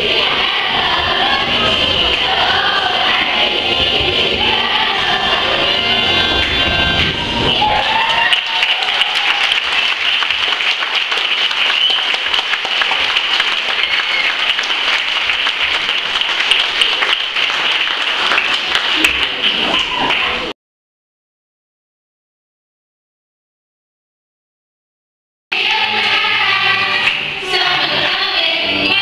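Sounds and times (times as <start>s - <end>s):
large audience applauding: 6.4s - 20.5s.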